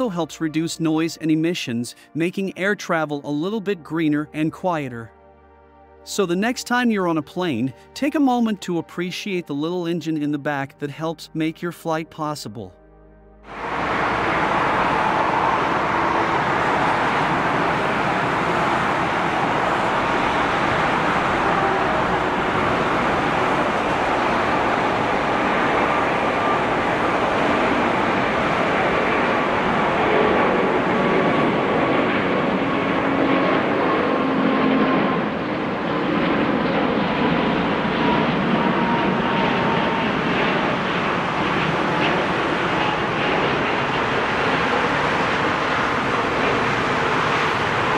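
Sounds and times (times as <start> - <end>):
jet engines roaring: 13.4 - 47.9.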